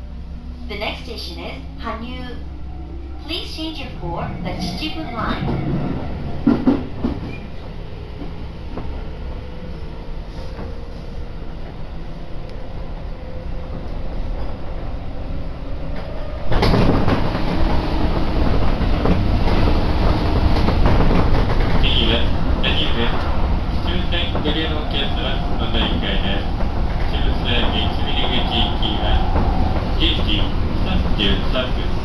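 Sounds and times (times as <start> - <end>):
train wheels rumbling on rails: 3.2 - 32.0
train bump: 3.3 - 9.2, 15.9 - 32.0.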